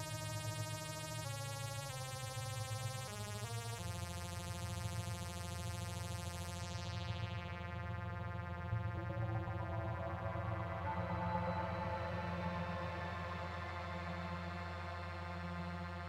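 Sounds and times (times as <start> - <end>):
ambient synthesizer drone: 5.4 - 16.0
higher synthesizer note: 8.6 - 16.0.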